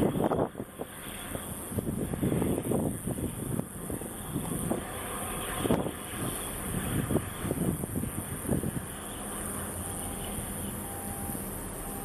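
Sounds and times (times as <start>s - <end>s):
wind buffeting microphone: 0.0s - 9.0s.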